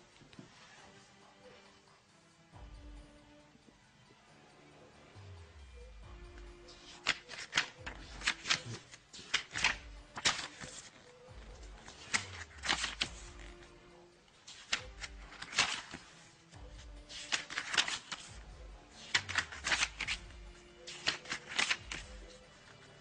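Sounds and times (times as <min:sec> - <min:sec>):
paper pages flipping: 0:06.7 - 0:23.0.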